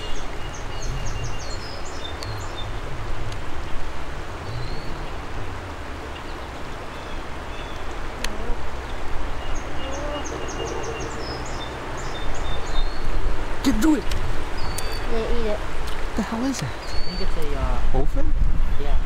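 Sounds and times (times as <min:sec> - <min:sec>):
songbirds chirping: 0:00.0 - 0:18.0
flowing creek water: 0:00.0 - 0:19.0
wind buffeting microphone: 0:00.0 - 0:19.0.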